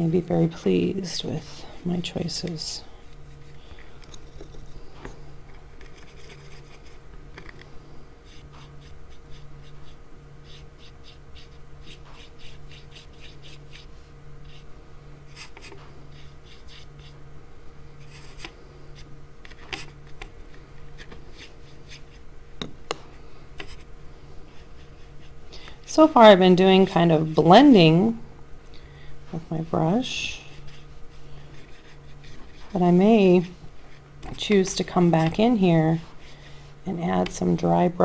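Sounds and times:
low pulsing hum: 0.0s - 38.0s
paintbrush scrubbing on paper: 3.0s - 4.8s, 5.8s - 7.0s, 8.2s - 17.2s, 18.0s - 20.1s, 21.0s - 22.2s, 23.6s - 25.4s, 30.2s - 33.0s
brush tapping: 8.2s - 14.7s.

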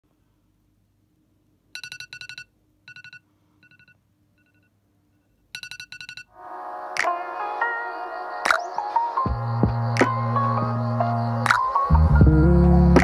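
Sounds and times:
phone alarm beeping: 1.8s - 4.7s
music: 6.3s - 13.0s.

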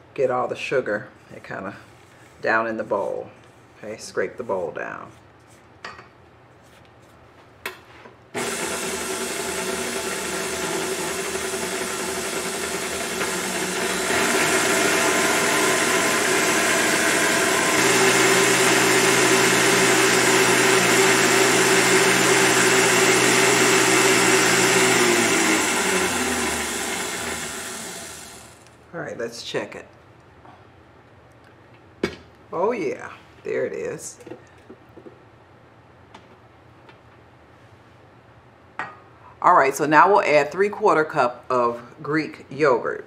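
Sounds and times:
stand mixer whipping cream: 8.4s - 28.6s.

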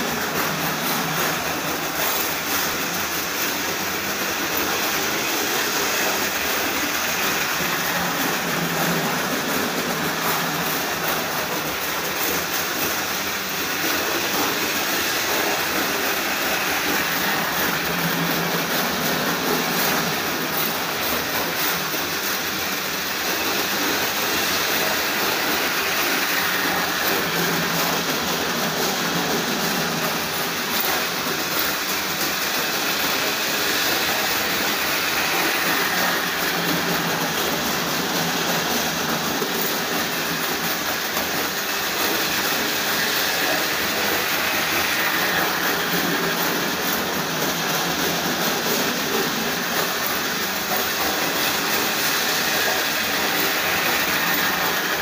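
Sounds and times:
model trains whirring and rattling: 0.0s - 55.0s.

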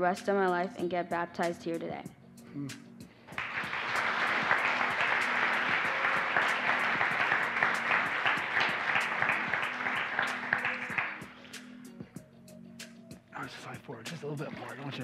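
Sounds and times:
crowd clapping: 3.3s - 11.6s.

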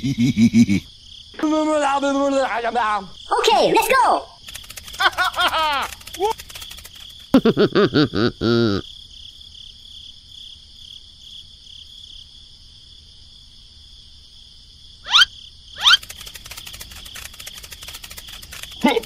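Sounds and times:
crickets chirring: 0.0s - 19.0s
quick rising whistles: 15.0s - 18.8s.

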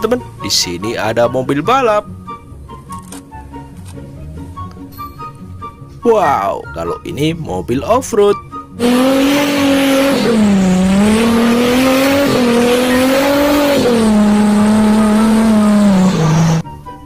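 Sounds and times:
suv engine revving hard: 8.8s - 16.6s
tyres spinning and mud spraying: 8.8s - 16.6s.

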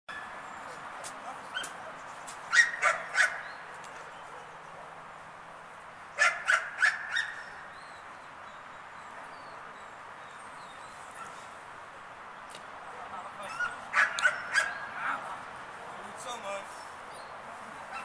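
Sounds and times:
dog barking: 2.5s - 3.5s, 6.2s - 7.4s, 13.4s - 14.8s.

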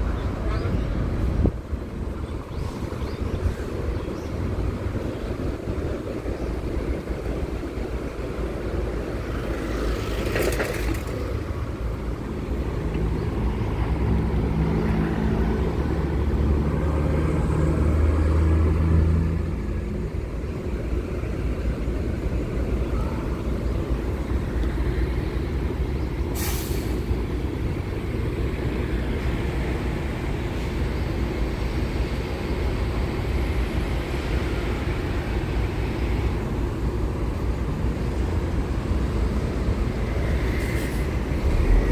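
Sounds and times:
heavy vehicle engine running: 0.0s - 41.9s
low rumble of road traffic: 0.0s - 41.9s
short hisses: 26.4s - 27.1s.

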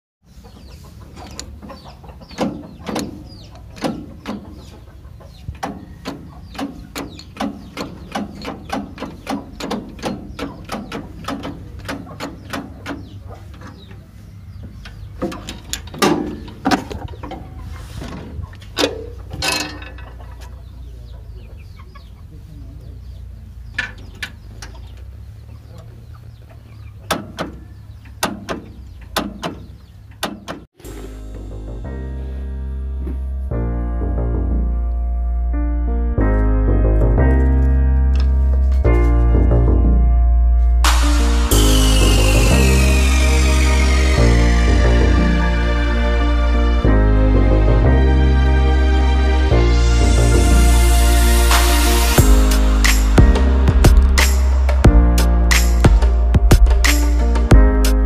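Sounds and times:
chickens clucking: 0.2s - 30.7s.

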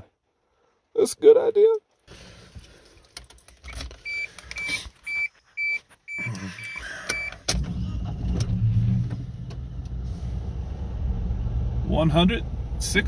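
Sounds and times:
dashboard warning chime beeping: 4.0s - 7.5s
car engine starting: 6.8s - 13.0s.

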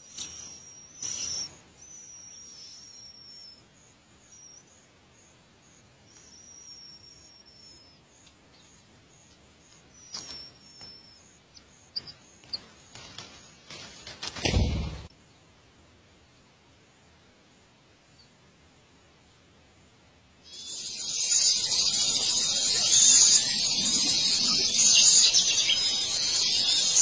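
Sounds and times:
nestling begging calls: 0.0s - 3.6s, 9.6s - 13.8s, 20.5s - 27.0s.

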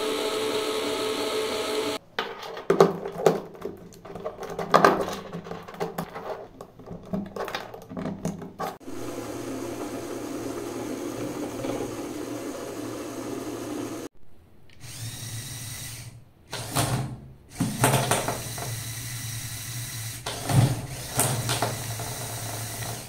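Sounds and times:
small electric motors whirring: 0.0s - 2.0s, 8.8s - 14.1s, 14.8s - 16.8s, 17.5s - 23.0s
plastic parts clicking: 2.1s - 8.8s.

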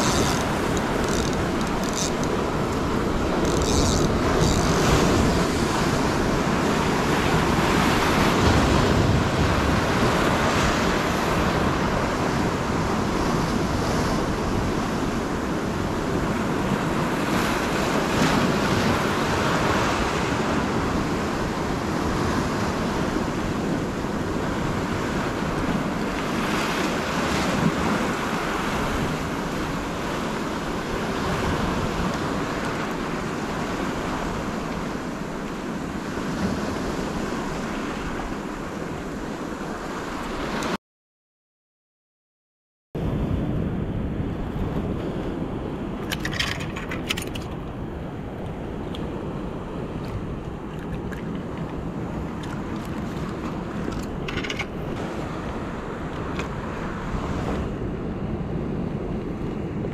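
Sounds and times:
wind buffeting microphone: 0.0s - 39.2s.

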